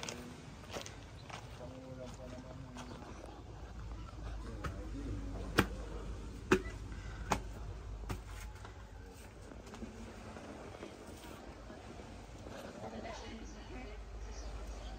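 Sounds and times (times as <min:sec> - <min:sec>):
footsteps on stone steps: 0:00.0 - 0:09.9.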